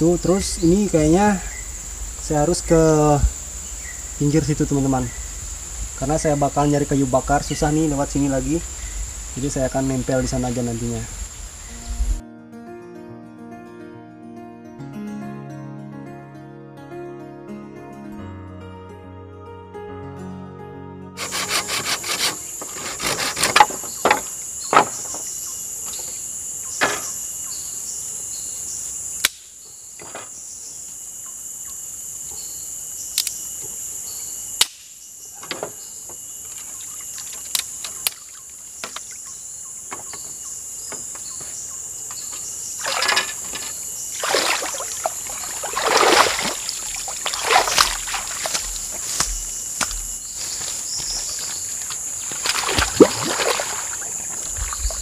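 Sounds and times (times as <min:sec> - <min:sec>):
insects shrilling: 0:00.0 - 0:12.2, 0:21.2 - 0:29.6, 0:32.4 - 0:55.0.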